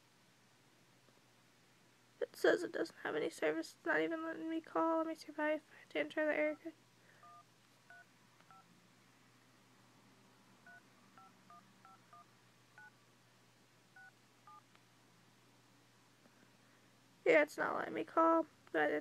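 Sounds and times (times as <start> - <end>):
phone keypad beeps: 7.2 - 8.6, 10.7 - 12.9, 14.0 - 14.6.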